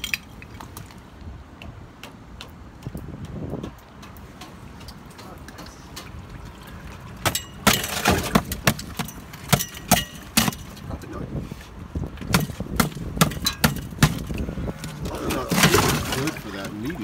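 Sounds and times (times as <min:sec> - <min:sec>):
ice cracking and clattering: 0:07.2 - 0:10.9, 0:12.3 - 0:17.0.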